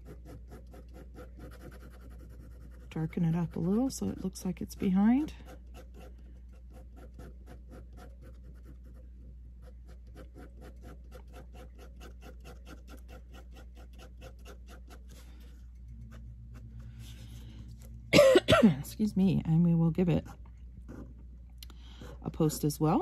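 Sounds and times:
pen scratching on paper: 0:00.0 - 0:16.7.

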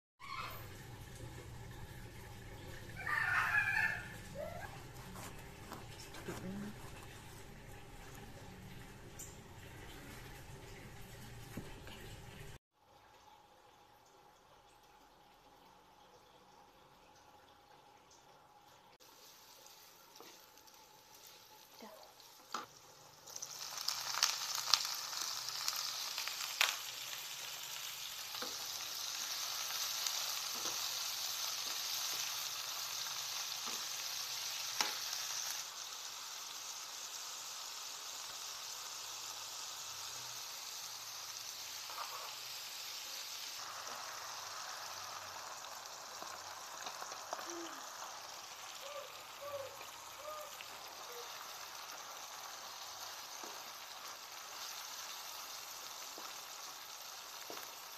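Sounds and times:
vegetables sizzling in hot oil: 0:00.2 - 0:12.6, 0:19.0 - 0:57.9
wooden spatula scraping wok: 0:04.8 - 0:07.3.

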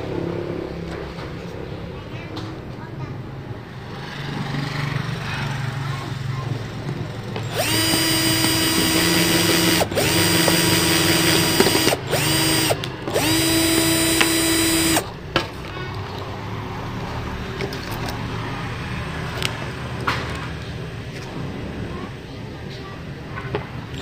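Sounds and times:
drill motor whining: 0:07.4 - 0:15.1.

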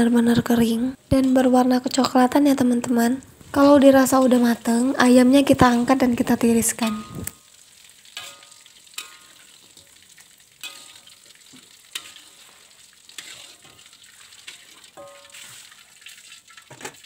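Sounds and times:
chicken sizzling in hot oil: 0:00.1 - 0:17.0
metal strainer scraping wok: 0:10.6 - 0:17.0.

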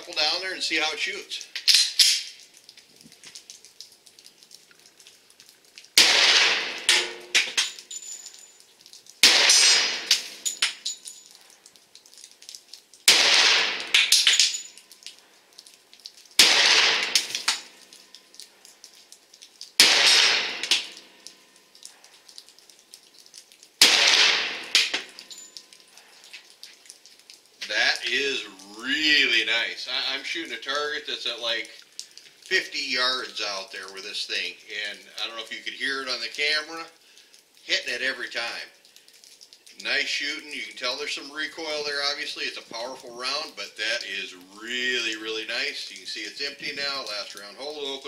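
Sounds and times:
light ticks: 0:01.4 - 0:06.0, 0:10.1 - 0:13.0, 0:13.9 - 0:16.4, 0:17.2 - 0:19.8, 0:20.6 - 0:23.8, 0:24.7 - 0:29.0, 0:31.5 - 0:37.7, 0:38.4 - 0:48.0
pistol shots with echo: 0:06.0 - 0:07.7, 0:09.2 - 0:10.4, 0:13.1 - 0:14.5, 0:16.4 - 0:17.7, 0:19.8 - 0:21.0, 0:23.8 - 0:25.2.

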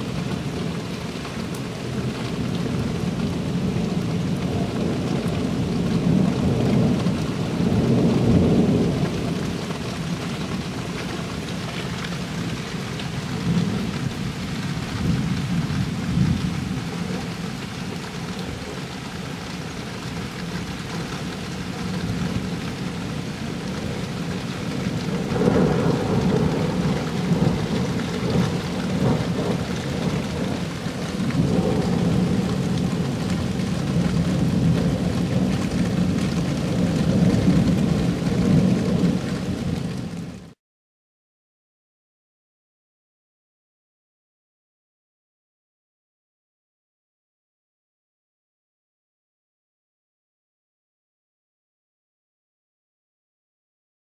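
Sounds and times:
thunder rumbling: 0:00.0 - 0:11.6, 0:12.3 - 0:40.5
heavy rain hissing: 0:06.0 - 0:40.4.

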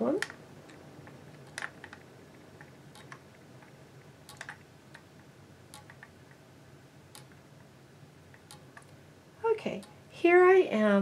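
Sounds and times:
knitting machine needles clicking: 0:00.0 - 0:02.0, 0:02.6 - 0:03.7, 0:04.3 - 0:05.1, 0:05.7 - 0:06.1, 0:08.3 - 0:09.0.

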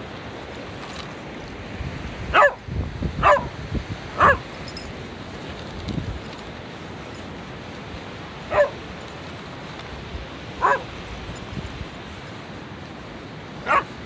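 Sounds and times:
dog barking: 0:02.3 - 0:02.6, 0:03.2 - 0:03.6, 0:04.2 - 0:04.5, 0:08.5 - 0:08.8, 0:10.6 - 0:10.9, 0:13.6 - 0:14.0.

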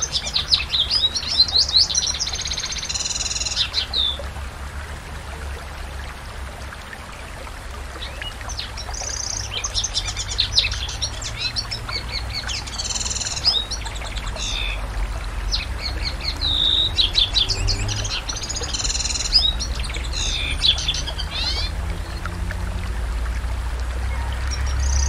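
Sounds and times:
canary singing trills: 0:00.0 - 0:04.2, 0:08.1 - 0:14.8, 0:15.5 - 0:22.3.

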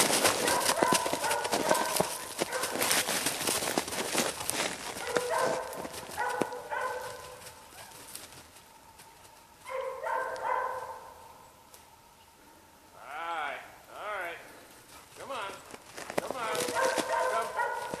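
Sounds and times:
dog running through brush: 0:00.0 - 0:09.7, 0:14.8 - 0:18.0.

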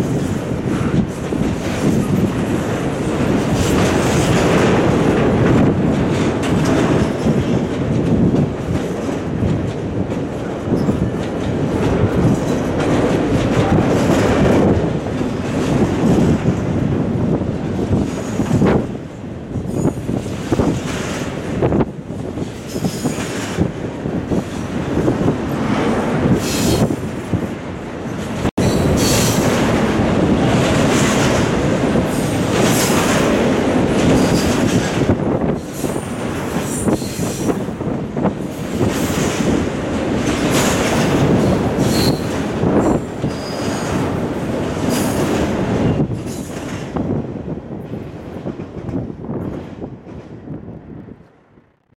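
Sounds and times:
train rumbling past: 0:00.0 - 0:51.9.

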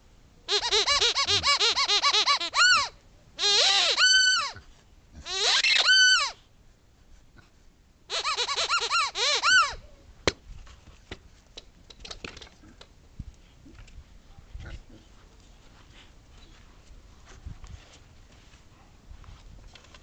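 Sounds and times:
rubber squeaky ball squeaks: 0:00.5 - 0:04.6, 0:05.3 - 0:06.4, 0:08.1 - 0:09.8.

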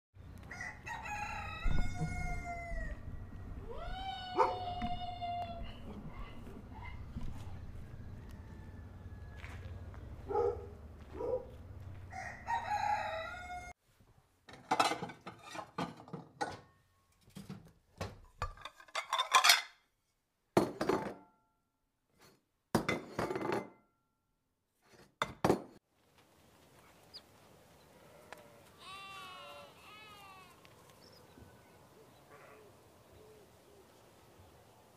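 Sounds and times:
animal call: 0:28.0 - 0:33.9.

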